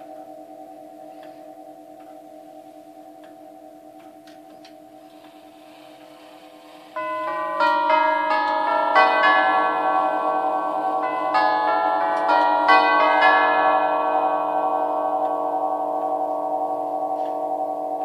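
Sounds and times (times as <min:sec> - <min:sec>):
clock chime tubes ringing: 0:00.0 - 0:18.0.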